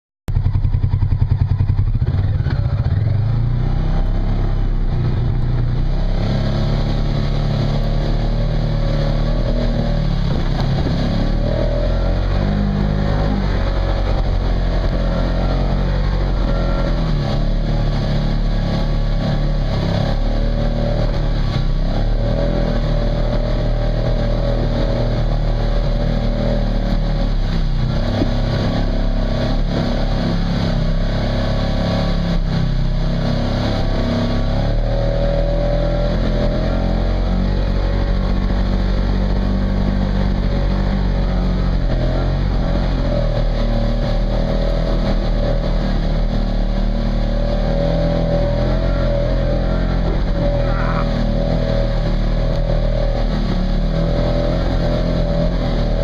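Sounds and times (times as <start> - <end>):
off-road vehicle engine climbing: 0.3 - 56.0.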